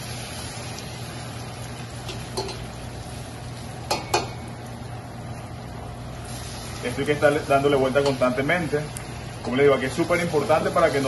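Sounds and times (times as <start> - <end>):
meat sizzling in hot oil: 0.0 - 11.0
metal tongs clacking on pot: 2.1 - 2.7, 3.9 - 4.4.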